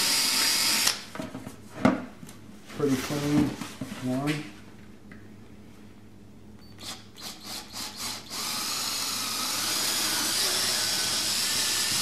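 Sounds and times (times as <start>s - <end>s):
cordless drill boring plastic: 0.0s - 1.0s, 6.8s - 12.0s.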